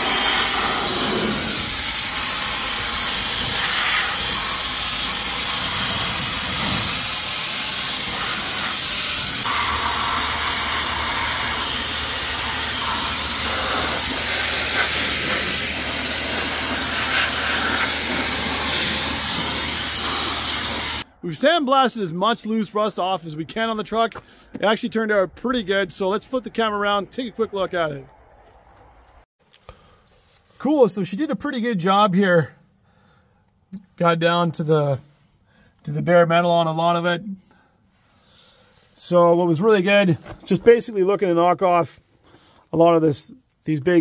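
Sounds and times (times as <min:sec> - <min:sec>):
sandblaster hissing: 0:00.0 - 0:21.1.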